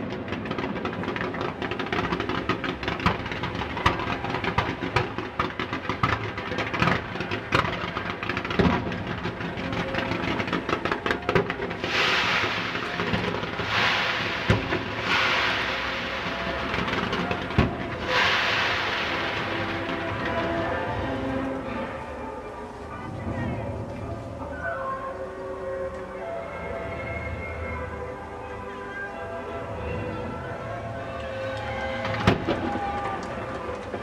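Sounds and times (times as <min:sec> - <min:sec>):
firework bangs: 0:00.0 - 0:21.3
fireworks crackling: 0:00.0 - 0:21.8, 0:31.4 - 0:34.0
rushing hiss: 0:11.7 - 0:20.8.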